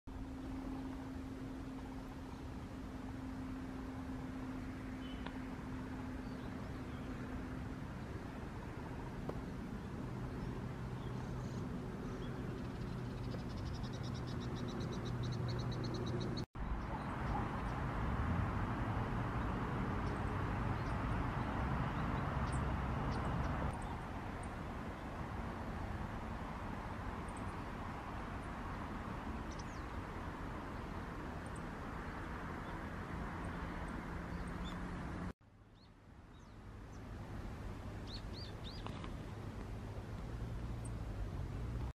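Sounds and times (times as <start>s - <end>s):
steady low hum: 0.1s - 34.0s
small birds chirping: 4.8s - 8.3s, 9.2s - 18.0s, 19.4s - 25.2s, 26.8s - 37.1s, 38.0s - 39.8s.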